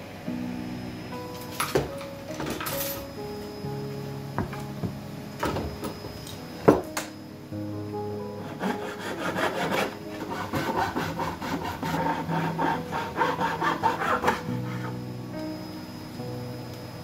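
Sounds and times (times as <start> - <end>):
faint background music: 0.0 - 17.0
hand tool scraping wood: 8.5 - 14.9.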